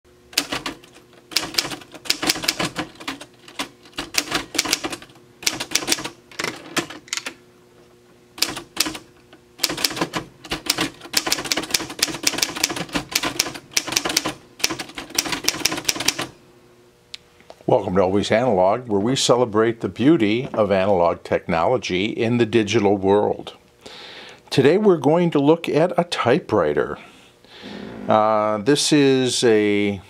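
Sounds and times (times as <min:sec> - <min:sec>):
manual typewriter typing: 0:00.3 - 0:07.4, 0:08.4 - 0:16.3.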